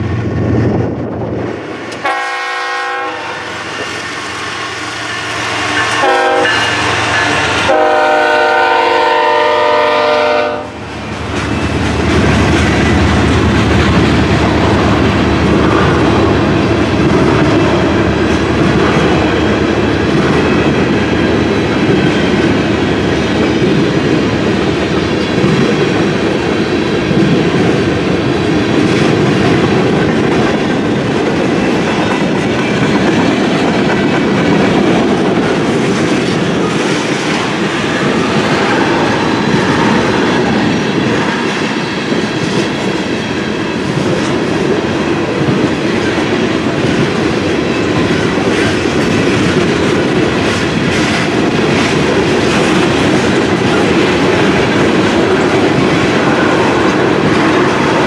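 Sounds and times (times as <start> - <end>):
steel wheels on rail: 0.0 - 58.0
freight train horn chord: 2.0 - 3.6, 5.5 - 10.8.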